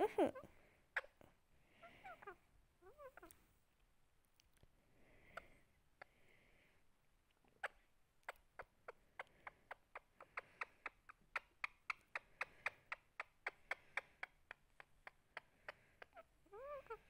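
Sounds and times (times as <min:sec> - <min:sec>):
parakeet beak clicking: 0:08.2 - 0:16.2.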